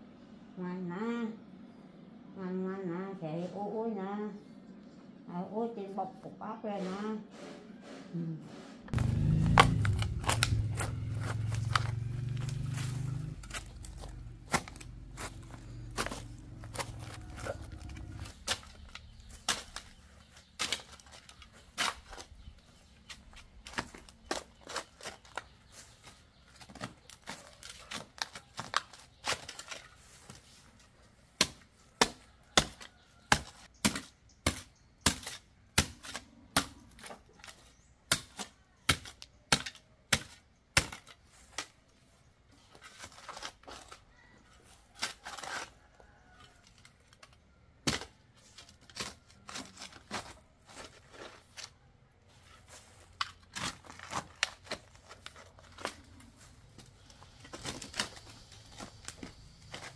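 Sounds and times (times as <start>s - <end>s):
spade striking stony soil: 8.9s - 22.4s.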